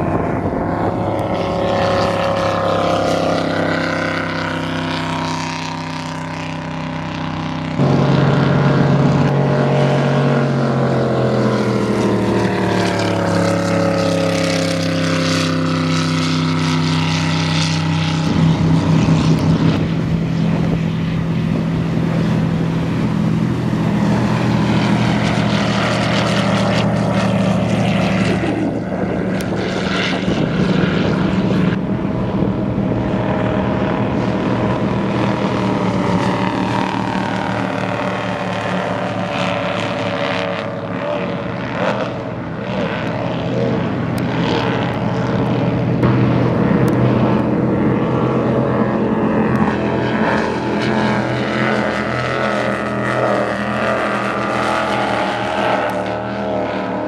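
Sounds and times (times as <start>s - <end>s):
powerboats passing at speed: 0.0s - 57.0s.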